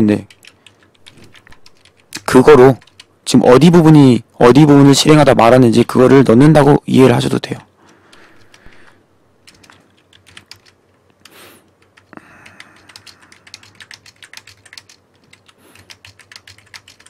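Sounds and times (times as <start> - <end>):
computer keyboard typing: 0.0 - 3.8, 7.9 - 17.0.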